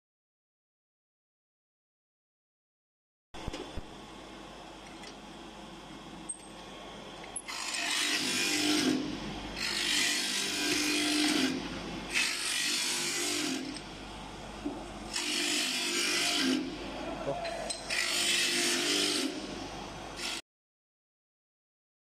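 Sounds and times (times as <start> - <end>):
grinding machine rasping: 7.4 - 13.8, 15.1 - 19.5.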